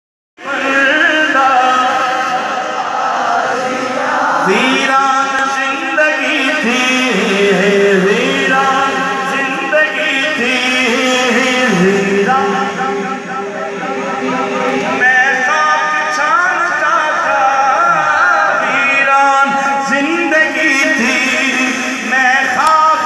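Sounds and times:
man singing into a microphone: 0.4s - 2.9s, 4.1s - 23.0s
blend of voices: 0.4s - 23.0s.

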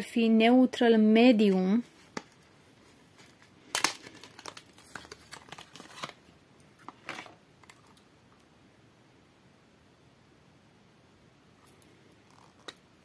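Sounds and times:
packaging clicks and crinkling: 3.1s - 8.0s.

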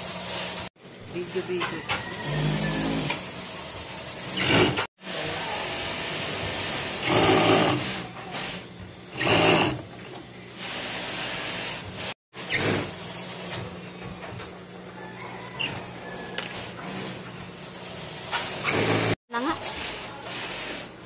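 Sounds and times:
sewing machine motors humming: 1.1s - 13.7s, 15.5s - 21.0s
sewing machine needle bursts: 6.9s - 9.8s.

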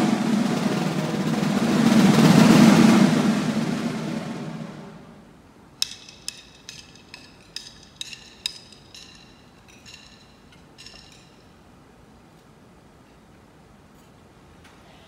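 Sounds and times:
light ringing clinks: 5.8s - 11.6s.

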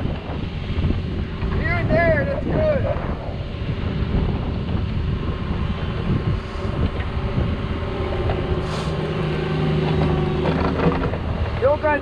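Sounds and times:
hydraulics working: 0.0s - 12.0s
steady droning tone: 0.0s - 12.0s
excavator diesel engine: 5.2s - 12.0s.

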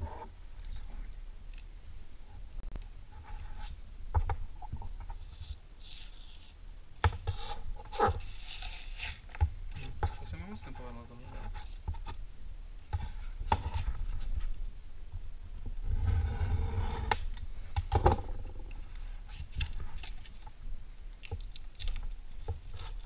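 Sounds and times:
cardboard card layers scraping: 7.3s - 9.3s.

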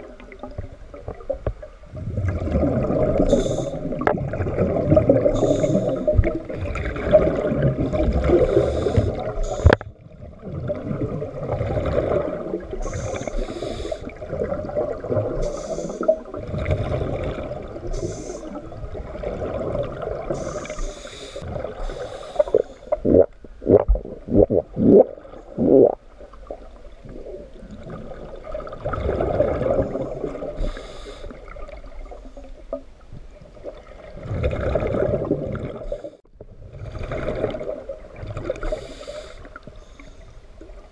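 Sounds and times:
exhaled bubbles rumbling: 0.0s - 38.9s
regulator inhale hiss: 3.2s - 4.0s, 5.2s - 6.2s, 8.4s - 9.9s, 12.7s - 14.2s, 15.4s - 16.3s, 17.8s - 18.7s, 20.3s - 23.0s, 30.0s - 31.5s, 38.6s - 40.4s.

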